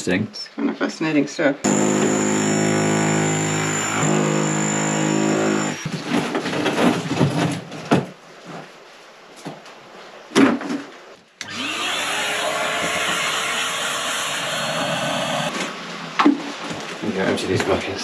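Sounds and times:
vacuum cleaner motor whine: 0:01.7 - 0:05.9, 0:11.4 - 0:15.5.

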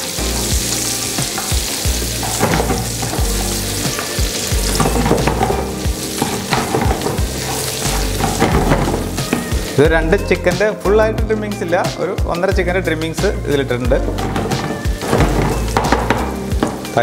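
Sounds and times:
spatula scraping a pan: 0:00.0 - 0:09.8, 0:13.9 - 0:17.0
food sizzling in a pan: 0:00.0 - 0:10.9, 0:13.2 - 0:17.0.

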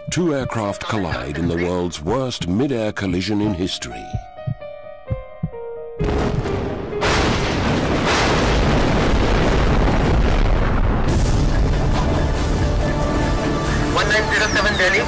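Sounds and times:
background music: 0:00.0 - 0:08.6, 0:11.0 - 0:15.0
explosion boom and roar: 0:06.0 - 0:13.2.

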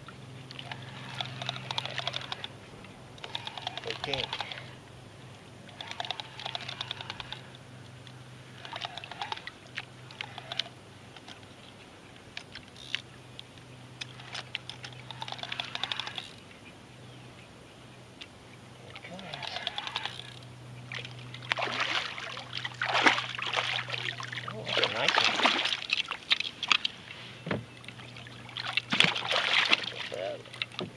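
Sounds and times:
steady low hum: 0:00.0 - 0:30.9
fishing reel clicking: 0:00.6 - 0:02.5, 0:03.2 - 0:04.7, 0:05.7 - 0:07.6, 0:08.6 - 0:11.4, 0:14.0 - 0:16.4, 0:19.2 - 0:20.4.

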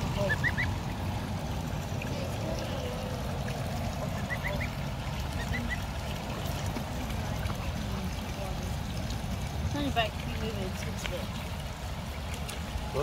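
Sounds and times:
goslings and ducklings peeping: 0:00.0 - 0:01.2, 0:03.4 - 0:06.2.

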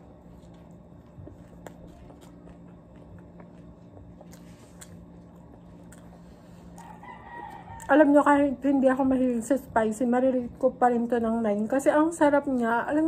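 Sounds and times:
person chewing: 0:00.0 - 0:07.9
low steady hum: 0:00.0 - 0:13.0.

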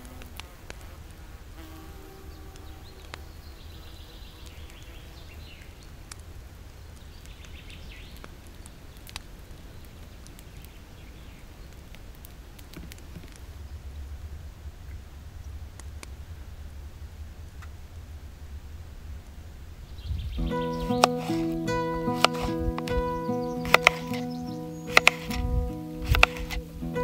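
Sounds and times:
insect buzzing: 0:00.0 - 0:05.4, 0:20.4 - 0:27.0.

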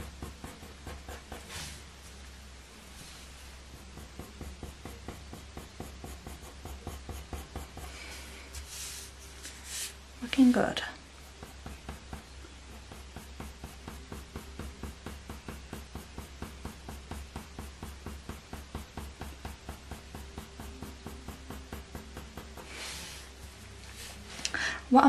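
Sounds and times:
pencil scratching on paper: 0:00.0 - 0:01.8, 0:03.1 - 0:10.0, 0:11.2 - 0:24.3.

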